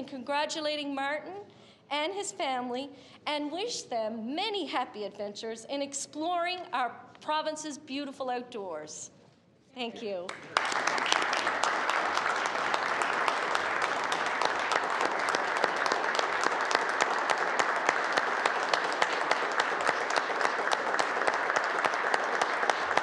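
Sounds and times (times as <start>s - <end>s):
many people clapping: 10.2s - 23.0s.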